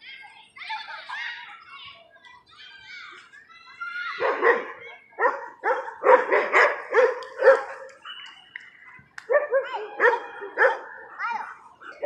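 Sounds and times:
dogs barking: 4.1s - 8.0s, 9.2s - 12.0s.

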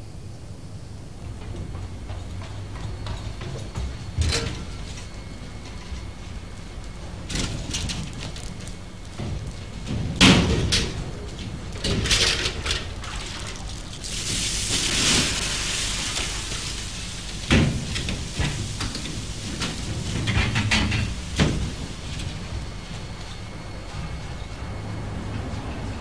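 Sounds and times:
steady low hum: 0.0s - 26.0s
knocks and bangs in machinery: 9.1s - 12.8s
hiss: 14.0s - 22.4s.

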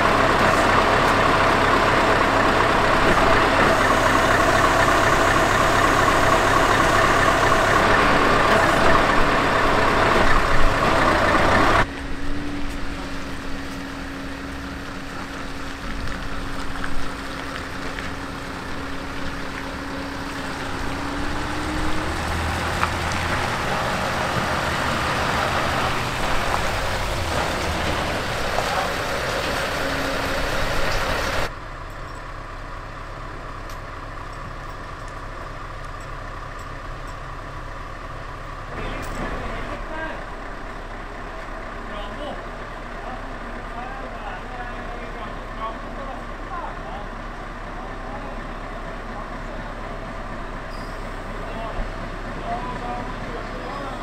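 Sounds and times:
rising engine whine: 0.0s - 34.8s
truck diesel engines running: 0.0s - 54.0s.

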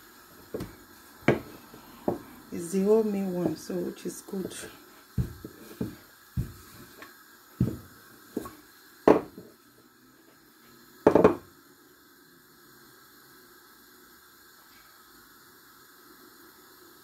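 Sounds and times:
rolling pin knocking on worktop: 0.6s - 1.5s, 5.2s - 6.7s, 7.6s - 8.5s, 9.1s - 9.5s, 11.1s - 11.5s.

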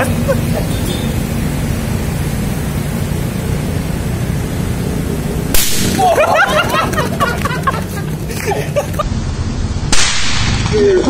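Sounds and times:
motorcycle engine running: 0.0s - 9.6s
balloon bursting bang: 5.5s - 6.0s, 9.9s - 10.8s.

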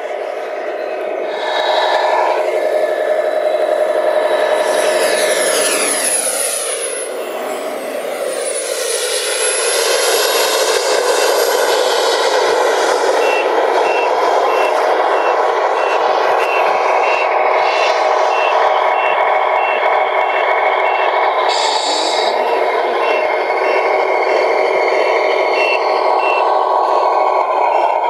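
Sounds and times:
engine passing: 0.0s - 28.0s
steady engine drone: 0.0s - 28.0s
reversing beeps: 10.3s - 28.0s.

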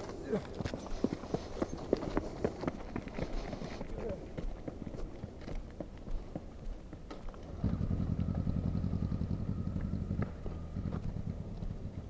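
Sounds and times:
motorcycle engine firing unevenly: 7.5s - 12.0s.

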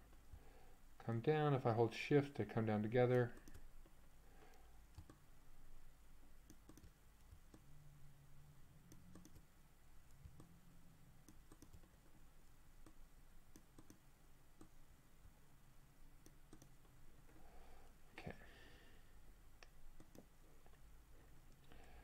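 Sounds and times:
computer mouse clicks: 3.4s - 3.6s, 4.5s - 5.2s, 6.5s - 7.7s, 8.9s - 9.5s, 11.2s - 12.0s, 12.8s - 14.0s, 16.2s - 16.9s, 19.6s - 20.3s.

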